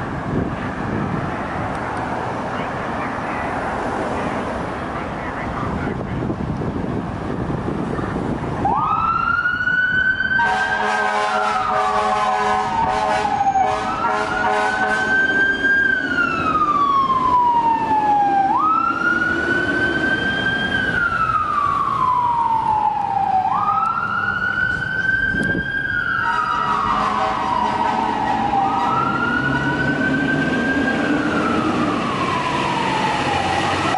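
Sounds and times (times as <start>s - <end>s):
fire truck siren: 8.2s - 33.9s
loud horn blasts: 10.4s - 15.3s, 26.2s - 29.8s.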